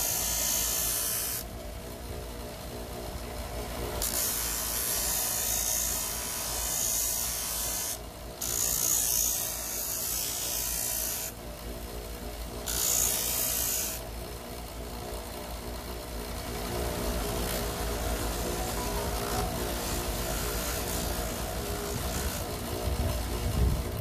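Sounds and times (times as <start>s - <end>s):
saw blade rasping on abrasive: 0.0s - 1.5s, 4.0s - 11.4s, 12.6s - 14.1s, 16.4s - 23.9s.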